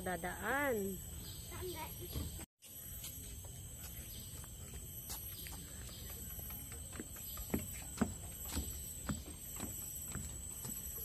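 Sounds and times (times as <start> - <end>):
outdoor background noise: 0.0 - 11.0
footsteps on boardwalk deck: 1.4 - 11.0.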